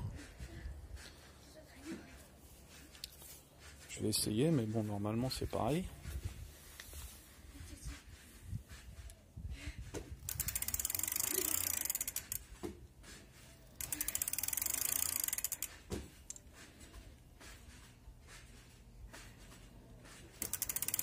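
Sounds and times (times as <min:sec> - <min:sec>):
bicycle freewheel ratcheting: 0:10.2 - 0:12.5, 0:13.7 - 0:16.4, 0:20.4 - 0:21.0.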